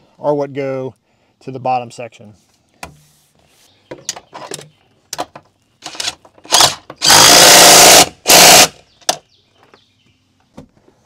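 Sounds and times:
cordless driver running: 5.9s - 8.8s.

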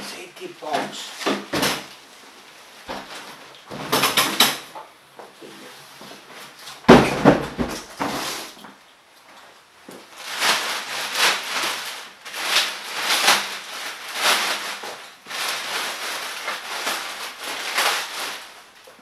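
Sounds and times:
plastic bag crinkling: 9.9s - 19.0s.

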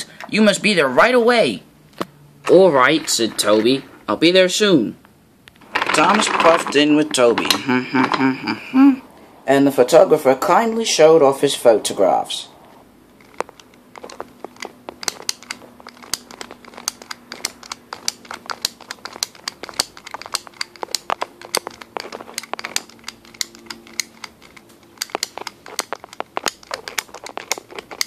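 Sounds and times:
faint steady hum: 0.0s - 28.0s
microphone handling clicks and crackles: 12.6s - 28.0s.

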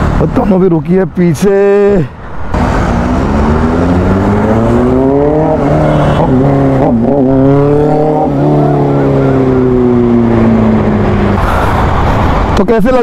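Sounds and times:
motorcycle engine accelerating: 2.5s - 12.2s.

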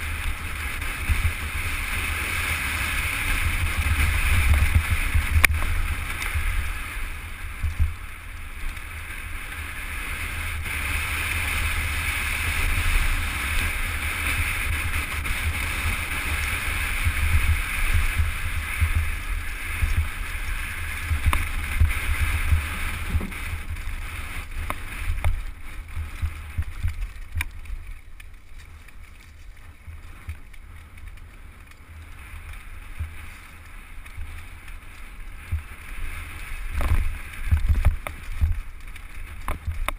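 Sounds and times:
wind buffeting microphone: 0.0s - 28.0s
tyres rolling on gravel: 0.0s - 39.9s
bike clicks and knocks: 24.6s - 39.9s.

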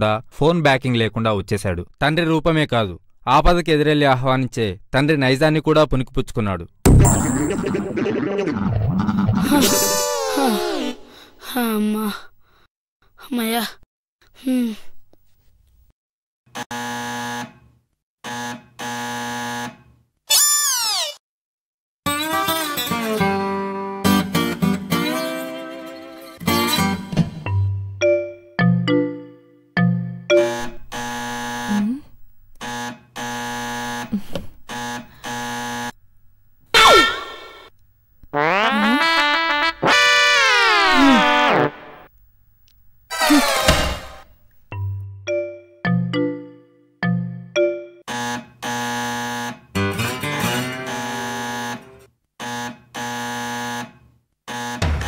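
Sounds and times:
loud burst with falling pitch: 6.9s - 9.9s
electric doorbell buzzing: 18.3s - 19.7s, 30.3s - 36.0s, 48.0s - 49.6s, 50.8s - 53.9s.

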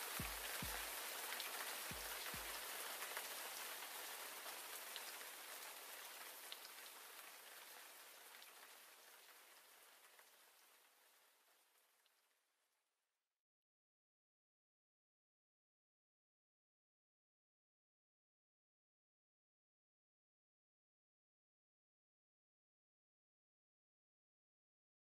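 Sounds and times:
steady rain falling: 0.0s - 12.4s.

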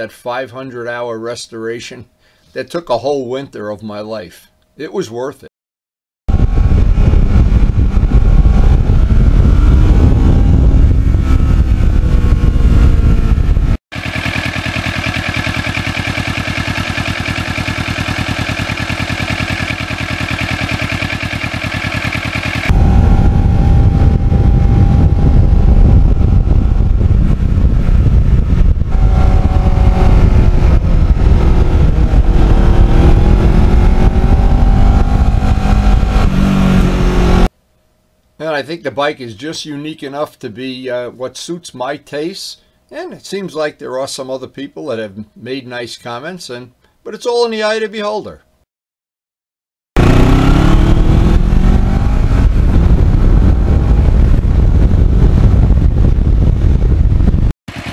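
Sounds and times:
wind noise: 6.3s - 13.8s, 22.7s - 37.5s, 50.0s - 57.9s
motorcycle engine: 6.3s - 37.5s, 50.0s - 57.9s.

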